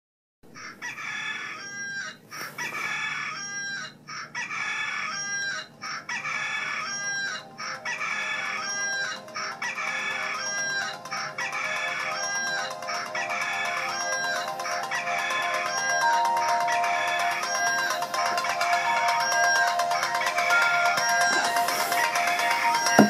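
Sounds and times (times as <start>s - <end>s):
rooster crowing: 0.6s - 10.8s.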